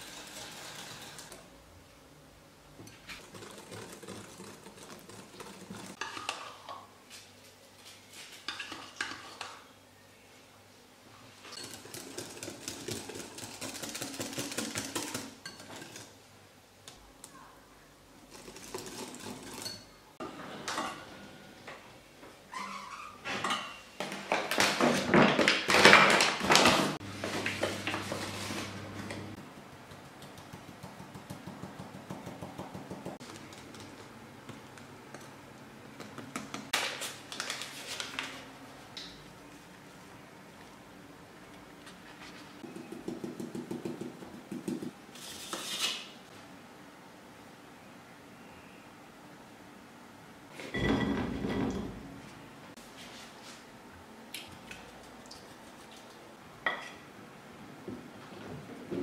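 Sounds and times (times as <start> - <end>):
whisk beating batter in glass bowl: 3.1 - 6.2, 11.5 - 16.1.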